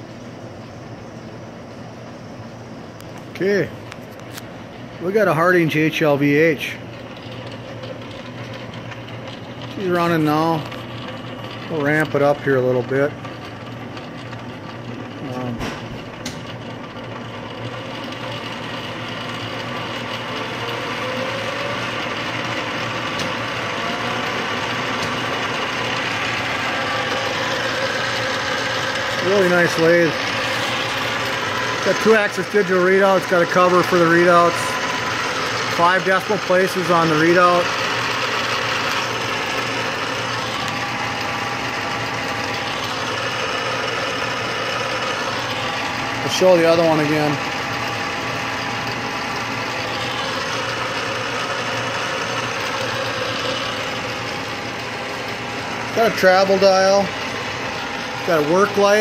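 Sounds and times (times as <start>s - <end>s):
lathe mechanical whir: 0.0s - 59.0s.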